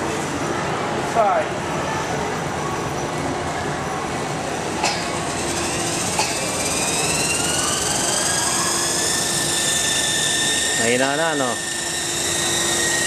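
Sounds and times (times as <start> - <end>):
model helicopter motor whine: 4.4 - 13.0.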